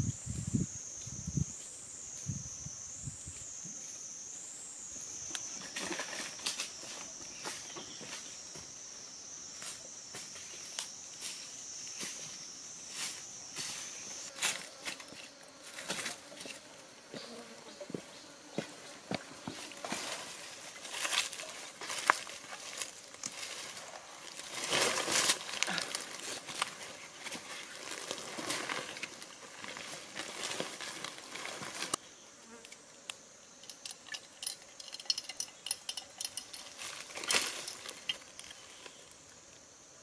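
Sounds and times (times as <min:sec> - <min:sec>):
insects buzzing and chirping: 0:00.0 - 0:40.0
dry leaves crackling: 0:19.8 - 0:32.0, 0:36.6 - 0:39.0.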